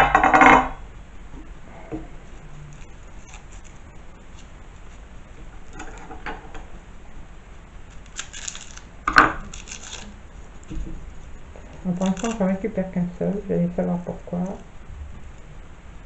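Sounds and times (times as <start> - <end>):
garlic skin crackling: 2.4 - 6.1, 7.7 - 12.6.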